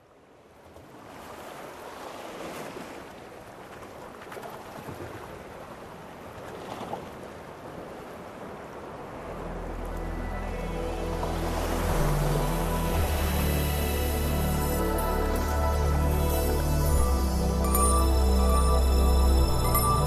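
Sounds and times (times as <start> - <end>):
steady rushing ambient noise: 8.8 - 20.0
low sustained music notes: 9.0 - 20.0.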